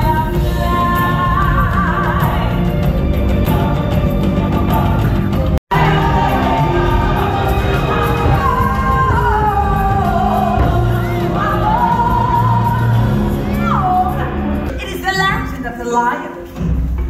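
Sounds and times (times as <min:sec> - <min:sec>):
live band playing: 0:00.0 - 0:15.2
singer holding long notes: 0:03.5 - 0:14.7.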